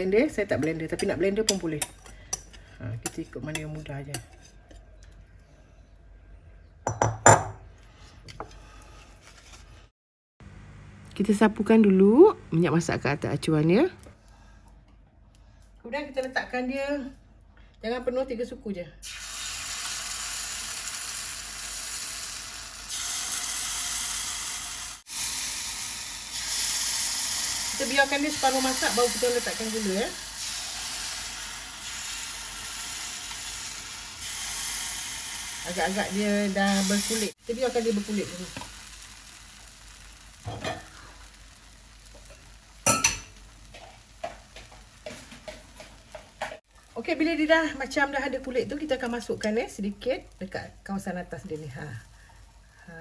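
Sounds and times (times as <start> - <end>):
batter sizzling in hot oil: 19.0 - 53.0.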